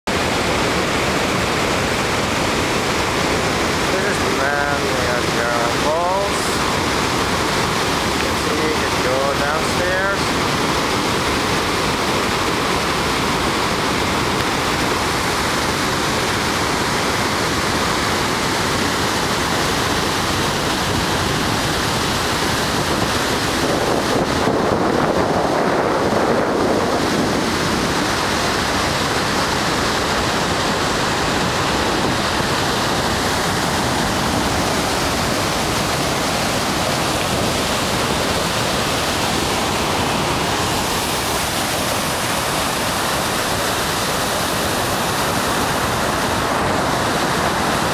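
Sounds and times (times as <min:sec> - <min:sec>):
waterfall rushing: 0:00.1 - 0:47.9
wind buffeting microphone: 0:20.8 - 0:29.0.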